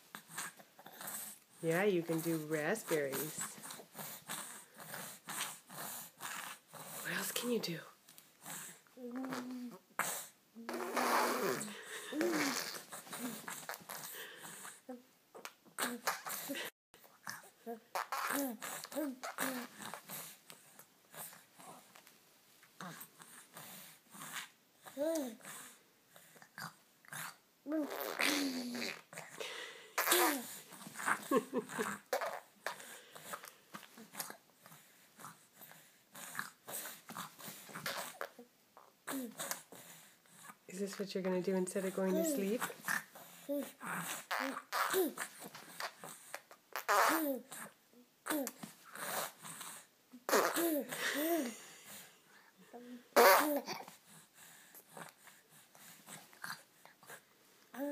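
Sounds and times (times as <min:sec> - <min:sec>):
baby breath noises: 0:00.1 - 0:07.6, 0:08.4 - 0:15.0, 0:15.8 - 0:21.9, 0:22.8 - 0:38.4, 0:41.8 - 0:57.9
baby blowing raspberries: 0:00.2 - 0:07.3, 0:08.4 - 0:15.0, 0:15.8 - 0:21.9, 0:22.8 - 0:40.2, 0:42.0 - 0:57.9
baby cooing: 0:09.0 - 0:14.1, 0:14.9 - 0:20.2, 0:26.5 - 0:29.4, 0:30.0 - 0:32.7, 0:37.8 - 0:39.6, 0:42.0 - 0:49.3, 0:50.3 - 0:51.6, 0:52.7 - 0:54.0
baby squeaking: 0:53.2 - 0:53.8.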